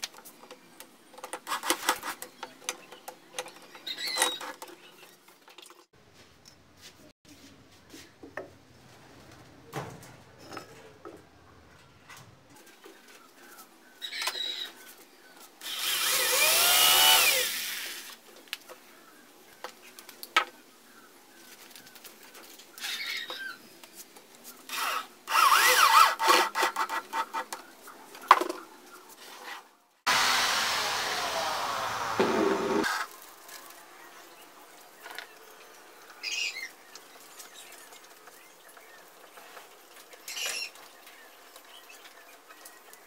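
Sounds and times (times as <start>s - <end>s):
cordless drill driving screws: 15.6s - 18.0s, 24.7s - 26.4s.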